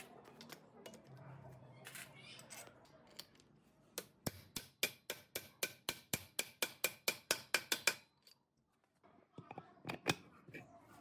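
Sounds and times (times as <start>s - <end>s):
hammer tapping steel pipe: 4.0s - 8.1s.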